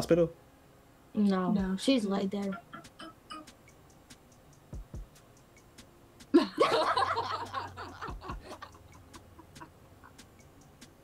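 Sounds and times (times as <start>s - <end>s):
girls laughing: 6.4s - 10.2s.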